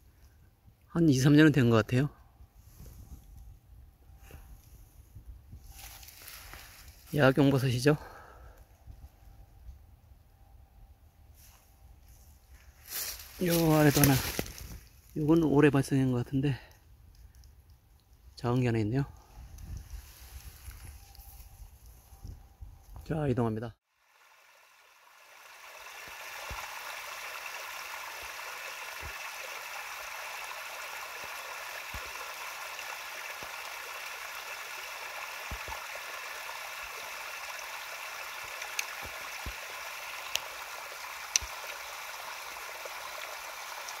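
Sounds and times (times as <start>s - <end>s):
stream rushing over rocks: 25.2s - 44.0s.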